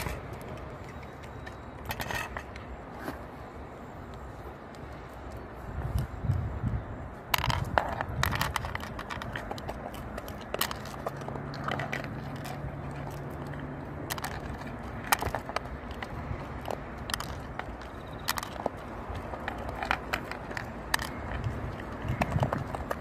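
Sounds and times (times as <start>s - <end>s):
dog chewing crunchy food: 7.3s - 23.0s.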